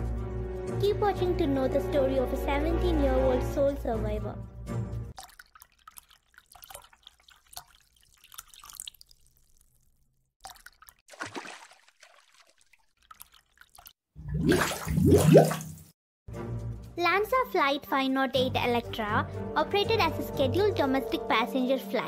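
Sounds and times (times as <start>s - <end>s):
faint water drips and plops: 5.1s - 15.9s
watery sound with rising pitch: 10.4s - 15.9s.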